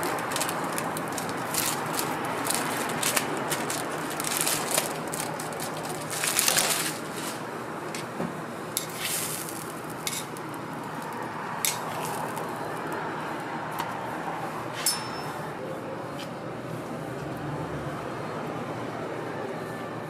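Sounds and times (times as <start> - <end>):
food sizzling on a griddle: 8.8 - 12.6.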